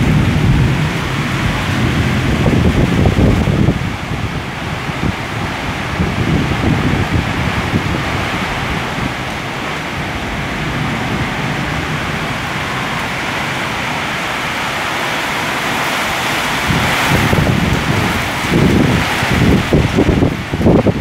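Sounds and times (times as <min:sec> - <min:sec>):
wind and rain hissing: 0:00.0 - 0:21.0
wind gusts buffeting microphone: 0:00.0 - 0:21.0.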